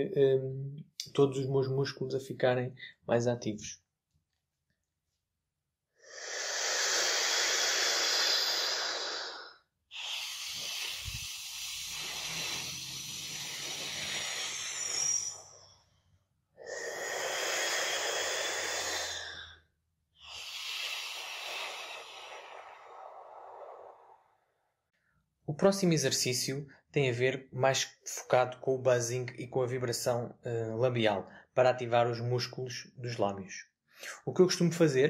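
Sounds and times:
long breath out: 6.0s - 15.8s, 16.6s - 24.4s
hissing breath drawn in: 6.0s - 15.9s, 16.6s - 24.5s.

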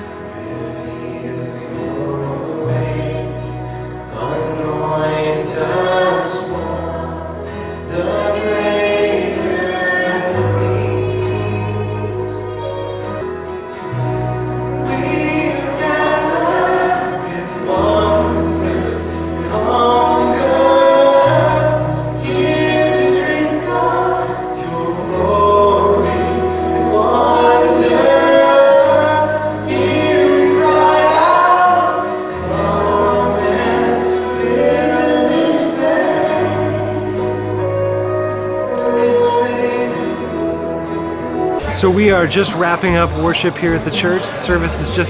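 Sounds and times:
people singing: 0.0s - 14.0s, 14.7s - 45.0s
worship band playing: 0.0s - 45.0s
low bass notes: 40.9s - 45.0s.

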